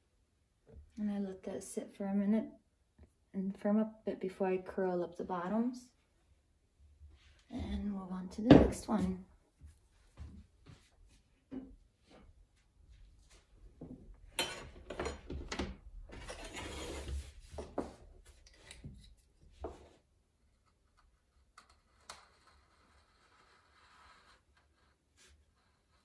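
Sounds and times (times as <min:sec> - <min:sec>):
clay rubbing scrape: 0:16.1 - 0:26.0.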